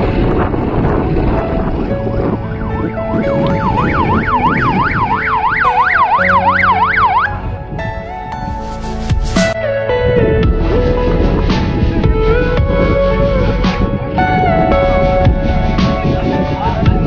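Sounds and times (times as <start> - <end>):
ambulance siren yelp: 2.0 - 7.6.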